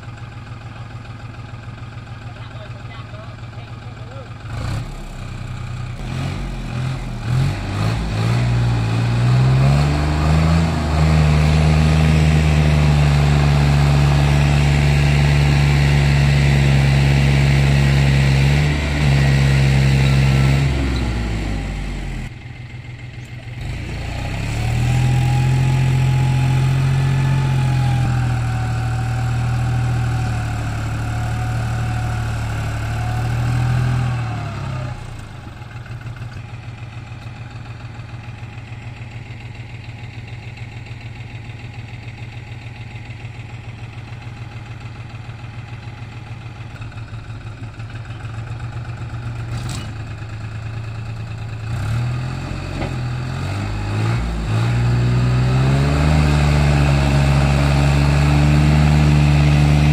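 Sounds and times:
vehicle engine revving: 0:04.5 - 0:22.3, 0:23.5 - 0:36.2, 0:51.4 - 0:59.9.

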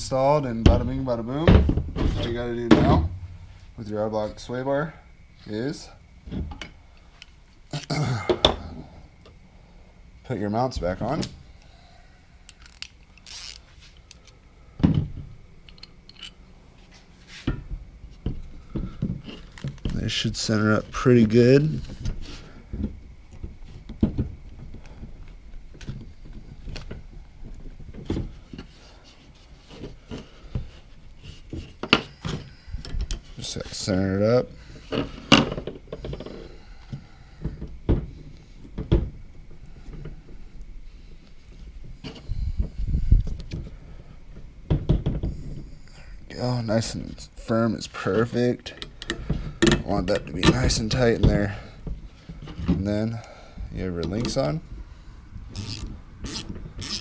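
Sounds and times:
knocks and clicks of metal parts: 0:48.7 - 0:52.8.

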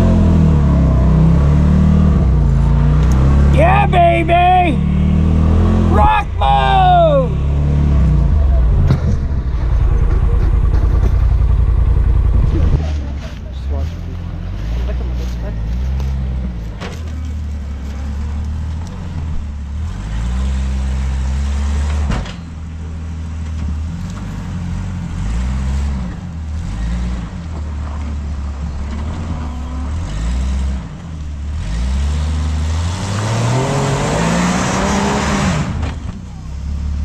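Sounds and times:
utility vehicle engine revving: 0:00.0 - 0:37.0.

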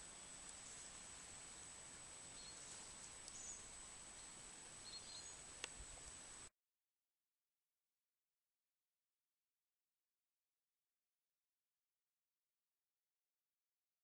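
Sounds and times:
steady hiss: 0:00.0 - 0:06.5
faint high bird chirps: 0:02.3 - 0:05.6.

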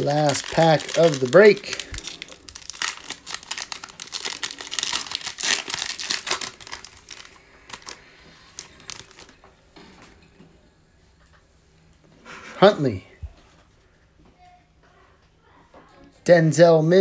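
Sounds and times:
foil wrapper crinkling and tearing: 0:00.0 - 0:09.4.

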